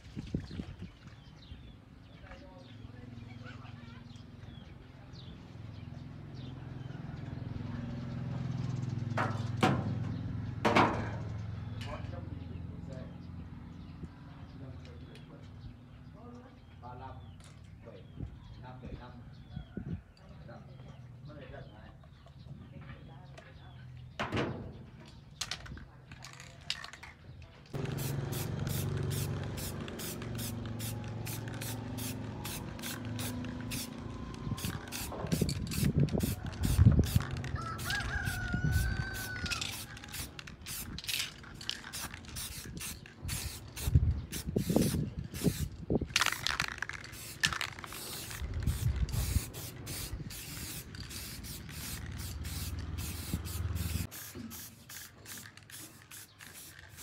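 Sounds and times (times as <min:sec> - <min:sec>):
short hissing sprays: 0:27.8 - 0:34.0, 0:47.1 - 0:57.0.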